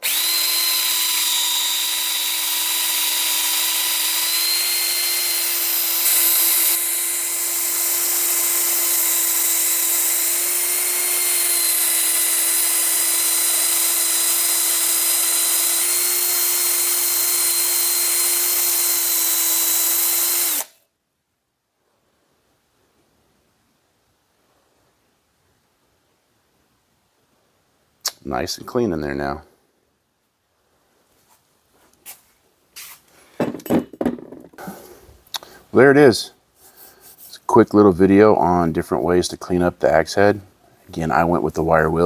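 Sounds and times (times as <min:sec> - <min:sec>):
cordless drill motor whine: 0:00.0 - 0:20.8.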